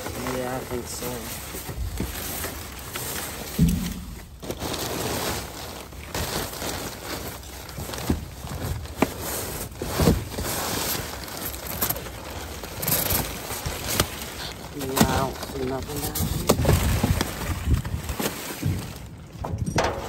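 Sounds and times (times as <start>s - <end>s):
plastic bags rustling: 0.0s - 20.0s
items knocking in dumpster: 3.3s - 6.2s, 18.0s - 20.0s.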